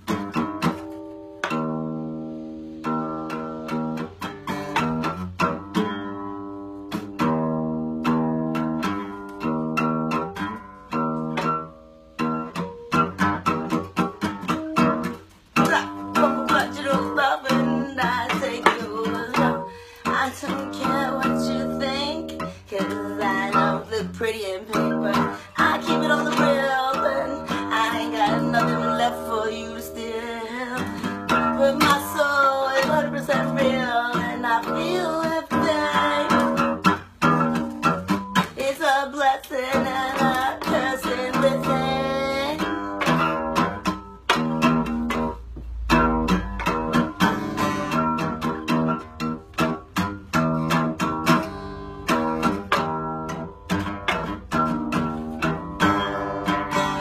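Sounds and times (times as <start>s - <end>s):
acoustic guitar strumming: 0.0s - 57.0s
woman singing: 15.6s - 43.8s.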